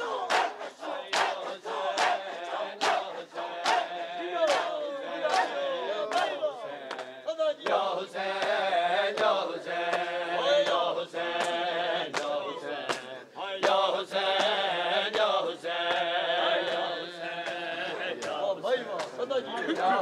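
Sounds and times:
men chanting in unison: 0:00.0 - 0:20.0
hand slaps on chest: 0:11.4 - 0:13.8.

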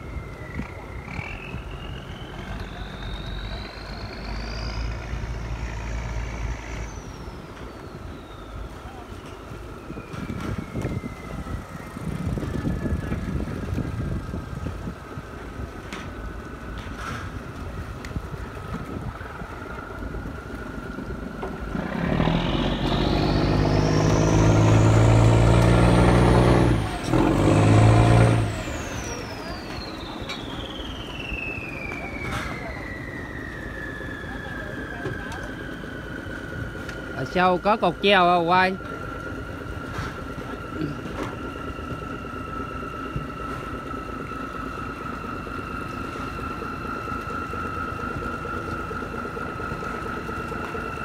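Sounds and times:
boat diesel engine revving: 0:00.0 - 0:09.2, 0:20.6 - 0:33.2
boat diesel engine rumble: 0:00.0 - 0:51.0
high whine rising in pitch: 0:00.0 - 0:51.0.

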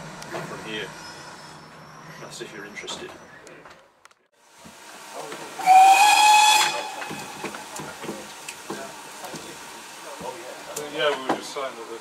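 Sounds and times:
train running noise: 0:04.7 - 0:10.4
steam locomotive whistle: 0:05.6 - 0:07.8.

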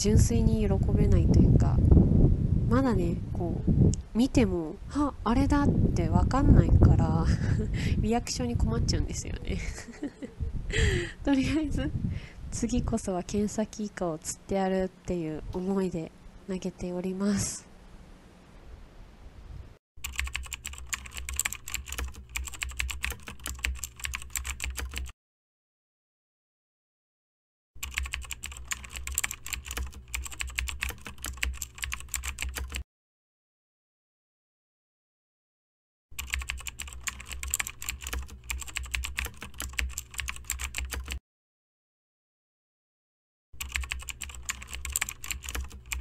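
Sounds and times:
computer keyboard typing: 0:20.0 - 0:25.2, 0:27.8 - 0:32.8, 0:36.2 - 0:41.2, 0:43.6 - 0:46.0.

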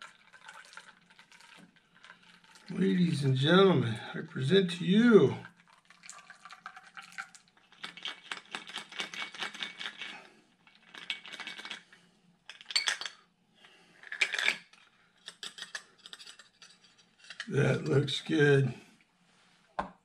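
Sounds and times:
ice rattling in cocktail shaker: 0:00.0 - 0:02.8, 0:05.4 - 0:11.9, 0:14.0 - 0:14.7.

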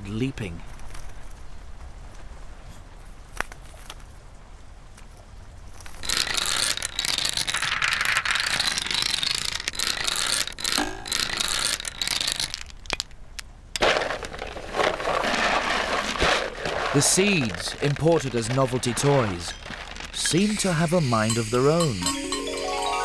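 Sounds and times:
mechanical toys clicking and whirring: 0:05.8 - 0:23.0.

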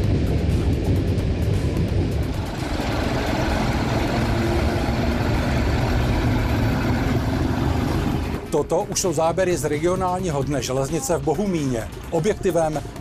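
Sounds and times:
diesel locomotive engine drone: 0:00.0 - 0:09.9.

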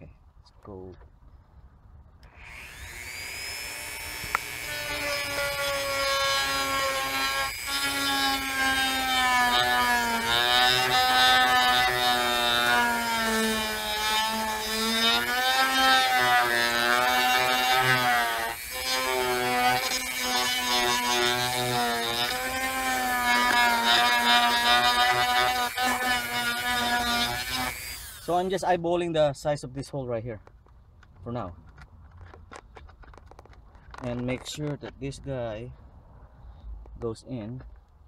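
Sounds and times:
rotary tool grinding plastic: 0:02.3 - 0:28.4, 0:32.0 - 0:34.6.

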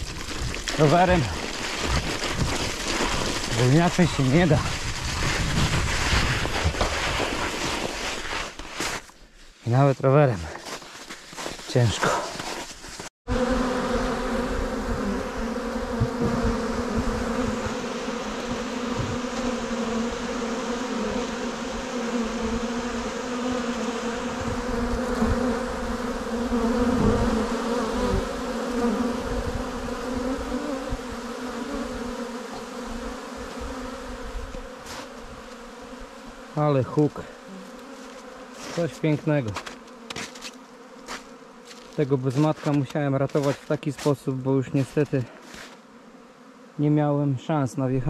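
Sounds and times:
bees buzzing: 0:13.3 - 0:42.7, 0:44.1 - 0:47.3.

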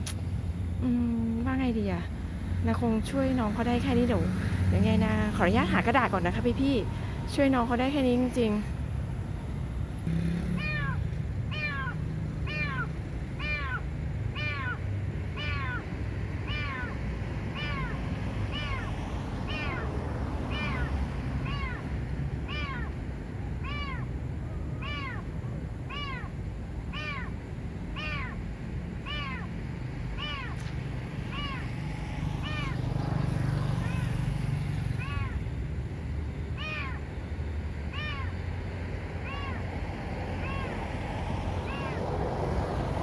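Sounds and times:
kitten meowing: 0:10.6 - 0:14.8, 0:15.4 - 0:18.9, 0:19.5 - 0:19.9, 0:20.5 - 0:21.9, 0:22.5 - 0:22.9, 0:23.6 - 0:24.1, 0:24.8 - 0:25.3, 0:25.9 - 0:26.3, 0:26.9 - 0:27.3, 0:28.0 - 0:28.4, 0:29.0 - 0:29.5, 0:30.2 - 0:30.7, 0:31.3 - 0:31.7, 0:32.4 - 0:32.8, 0:35.0 - 0:35.4, 0:36.6 - 0:37.0, 0:37.9 - 0:38.4, 0:39.2 - 0:39.6, 0:40.4 - 0:40.8, 0:41.6 - 0:42.0.

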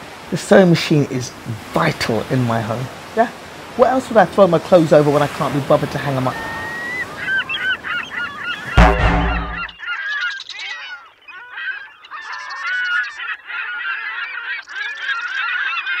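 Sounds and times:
birds honking and calling: 0:04.7 - 0:16.0
loud low hit: 0:08.8 - 0:09.7.

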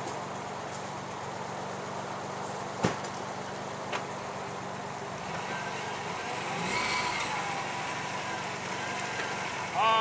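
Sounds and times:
vehicle engine idling: 0:00.0 - 0:10.0.

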